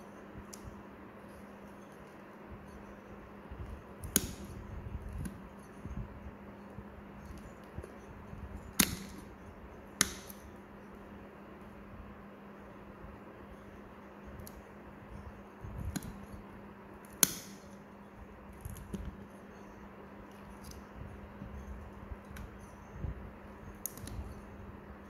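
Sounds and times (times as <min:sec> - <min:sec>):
low hum: 0:00.0 - 0:25.0
sharp snap: 0:17.1 - 0:17.7.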